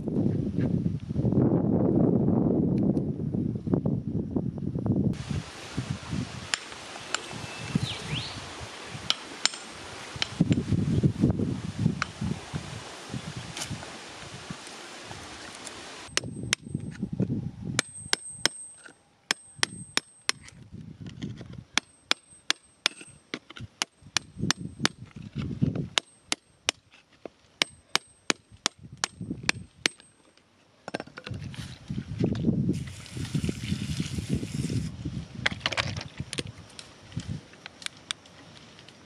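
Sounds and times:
outdoor rustle: 0:05.2 - 0:39.0
gritty scraping: 0:20.2 - 0:28.1, 0:29.5 - 0:36.3.

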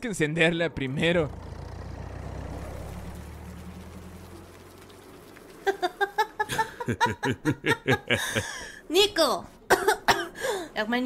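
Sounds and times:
low engine rumble: 0:00.7 - 0:06.6
person coughing: 0:09.7 - 0:10.6.

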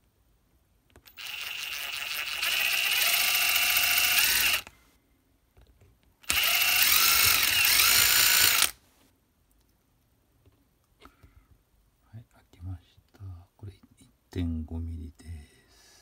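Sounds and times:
electric drill whining: 0:01.1 - 0:04.7, 0:06.2 - 0:08.8.

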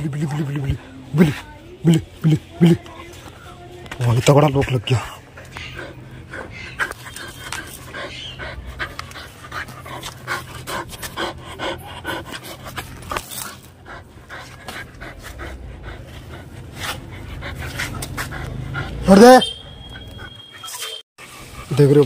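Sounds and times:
dog panting hard: 0:04.7 - 0:19.3.

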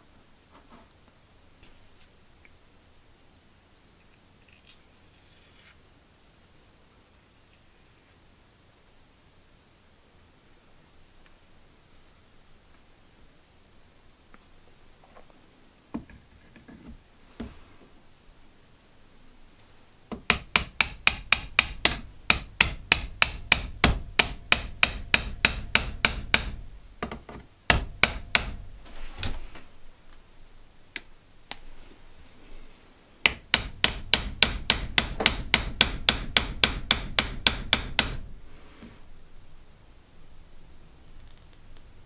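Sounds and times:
hammer blows on wooden handle: 0:20.1 - 0:28.7, 0:33.2 - 0:38.4.

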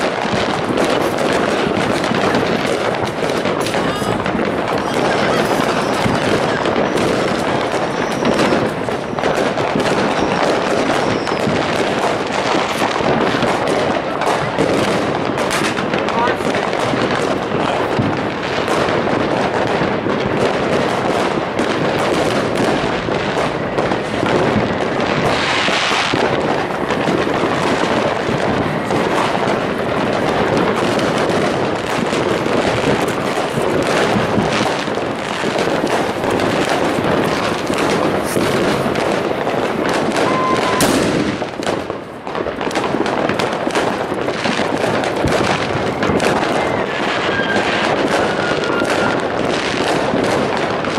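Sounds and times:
fireworks and firecrackers banging: 0:00.0 - 0:50.9
falling whistle: 0:40.2 - 0:40.9.

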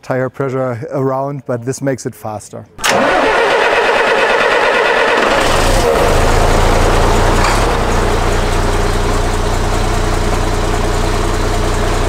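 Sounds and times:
diesel truck engine idling: 0:02.9 - 0:12.0.

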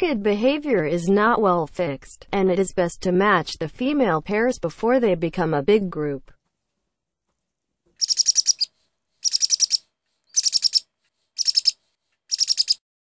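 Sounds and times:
bird chirping: 0:08.0 - 0:12.8.

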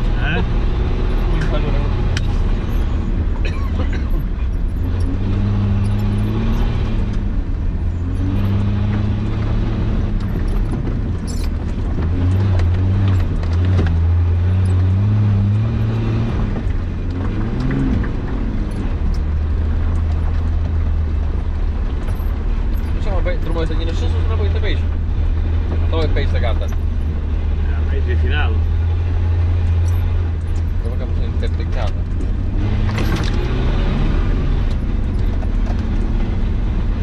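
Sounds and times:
engine running under load: 0:00.0 - 0:37.0
sharp clicks and knocks: 0:08.1 - 0:24.4, 0:29.6 - 0:37.0.

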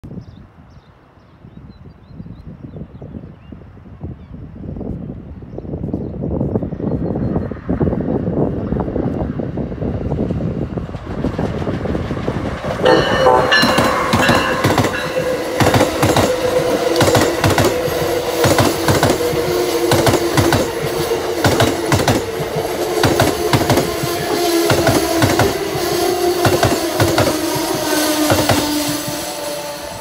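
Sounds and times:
steady train hum: 0:06.4 - 0:30.0
electric locomotive passing: 0:07.5 - 0:30.0
train wheels clicking over rail joints: 0:10.9 - 0:30.0.

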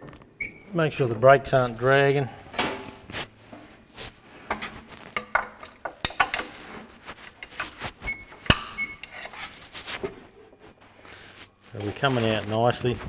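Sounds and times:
metallic clicks and clanks: 0:04.5 - 0:09.4.

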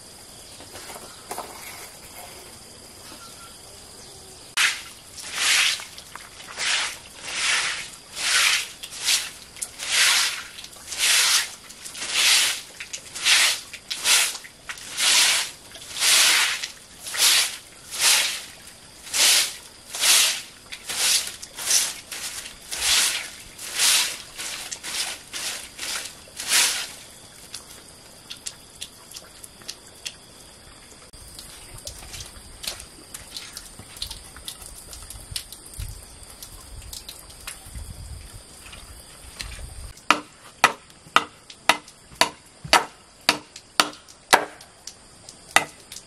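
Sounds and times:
broom sweeping tiled floor: 0:00.6 - 0:03.4, 0:04.5 - 0:27.7.

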